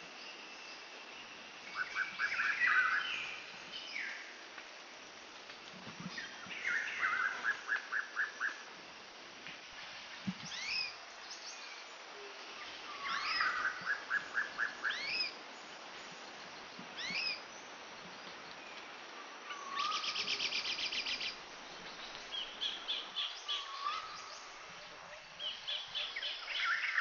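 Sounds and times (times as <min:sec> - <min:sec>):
birds singing: 0:12.9 - 0:18.8, 0:19.5 - 0:27.0.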